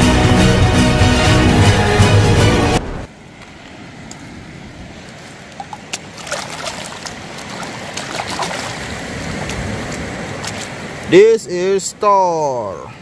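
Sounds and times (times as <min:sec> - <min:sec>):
water splashes: 0:03.2 - 0:11.2
muddy water sloshing: 0:03.4 - 0:11.1.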